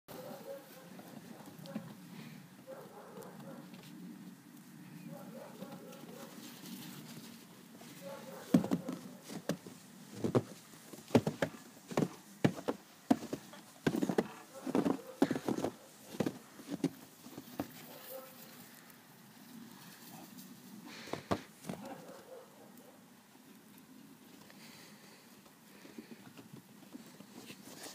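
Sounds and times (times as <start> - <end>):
footsteps crunching in snow: 6.1 - 18.8.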